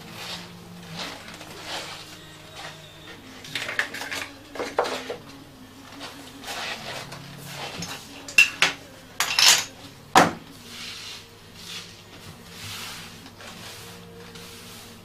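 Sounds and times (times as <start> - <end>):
faint steady hum: 0.0 - 15.0
rustling and rubbing: 0.0 - 15.0
tools clinking and knocking: 3.4 - 5.3, 7.7 - 10.4.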